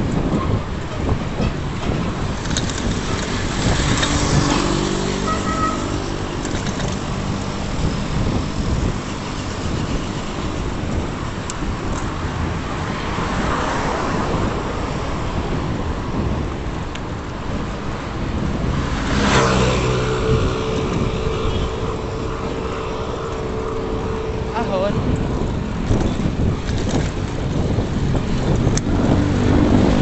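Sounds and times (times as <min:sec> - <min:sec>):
car engines: 0:00.0 - 0:30.0
tyres on the road: 0:00.0 - 0:30.0
vehicle engine hum: 0:00.0 - 0:30.0.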